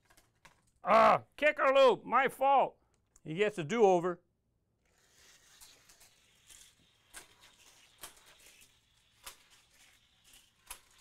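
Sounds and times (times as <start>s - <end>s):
toy car running on plastic track: 4.9s - 11.0s.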